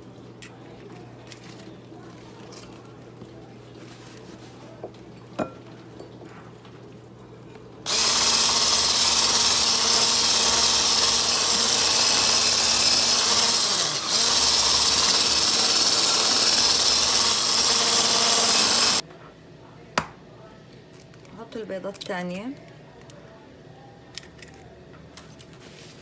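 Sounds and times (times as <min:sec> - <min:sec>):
electric hand mixer whirring: 0:07.9 - 0:19.0.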